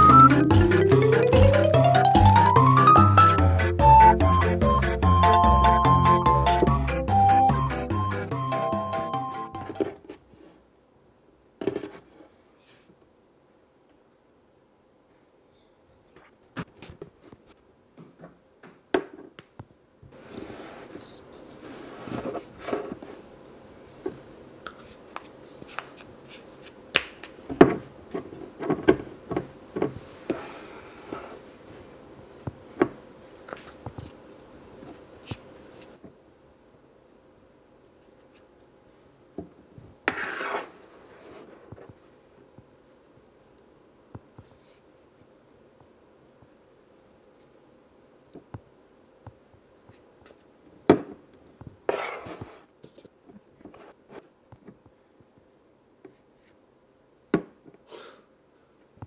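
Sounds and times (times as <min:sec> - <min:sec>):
sand scraping and rubbing: 0:40.1 - 0:41.6.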